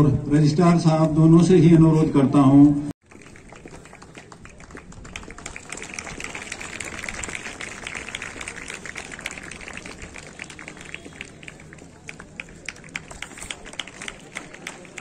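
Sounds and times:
crowd applauding: 0:03.0 - 0:15.0.

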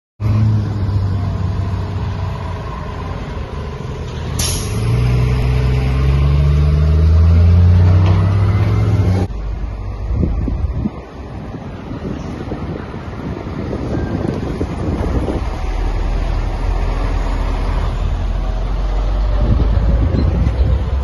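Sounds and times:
diesel fire engine passing: 0:00.2 - 0:21.0
sharp hiss of air: 0:04.4 - 0:05.0.

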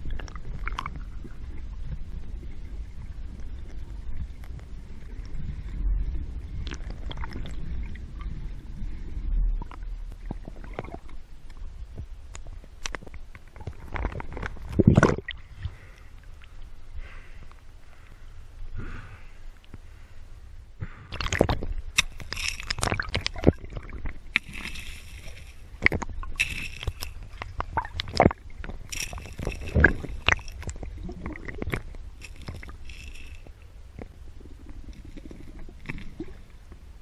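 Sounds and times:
underwater sloshing and gurgling: 0:00.0 - 0:37.0
hissing rushes of bubbles: 0:21.1 - 0:33.5.

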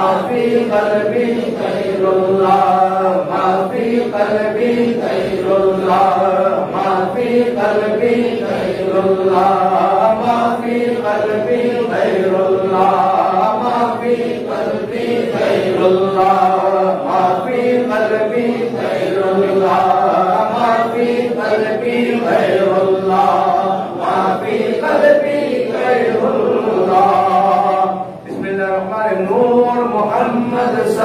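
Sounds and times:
congregation chanting in unison: 0:00.0 - 0:31.0.

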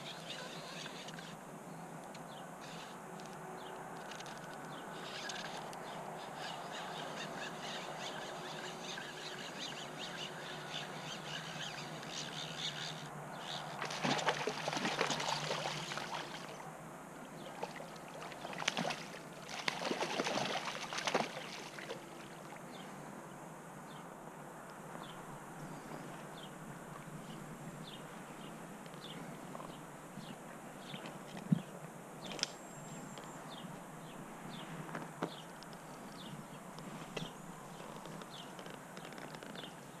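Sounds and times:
fish splashing at water surface: 0:13.8 - 0:16.6, 0:17.6 - 0:22.0.

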